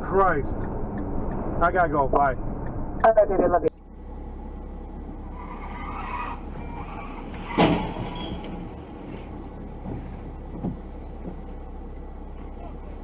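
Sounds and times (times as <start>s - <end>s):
car driving on wet road: 4.0s - 13.0s
loud thump: 7.4s - 8.6s.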